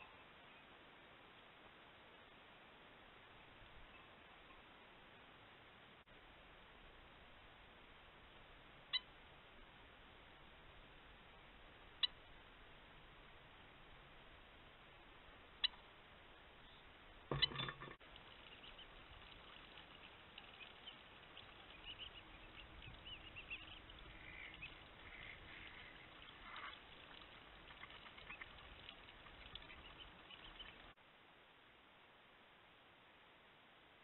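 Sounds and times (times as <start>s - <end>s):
low hiss: 0.0s - 34.0s
wing flurry: 18.2s - 31.0s
birds chirping and calling: 18.3s - 30.9s.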